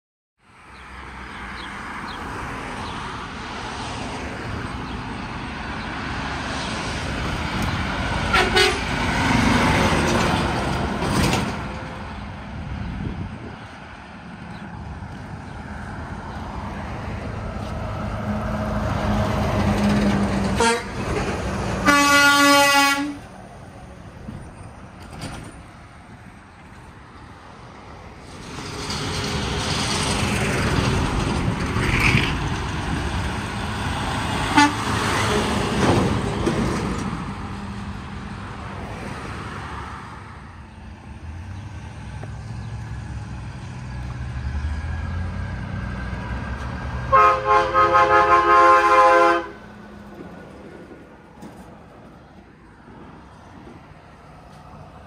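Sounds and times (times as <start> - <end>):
vehicles passing on a street: 0.4 - 55.0
truck air horn blast: 8.3 - 9.0, 20.5 - 21.1, 21.8 - 23.3, 34.5 - 35.5, 47.1 - 49.7.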